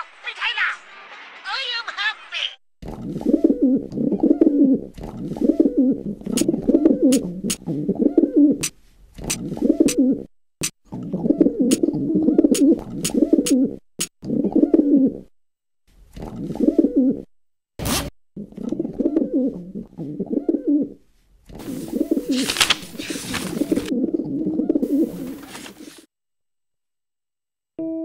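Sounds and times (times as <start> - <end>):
pigeons cooing: 3.1 - 8.6, 9.2 - 10.3, 11.0 - 15.3, 16.3 - 17.3, 18.4 - 21.0, 21.6 - 26.0.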